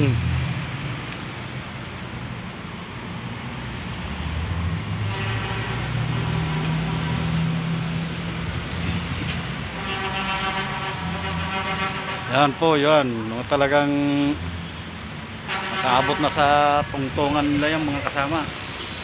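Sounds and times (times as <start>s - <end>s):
low city rumble and hum: 0.0s - 14.4s.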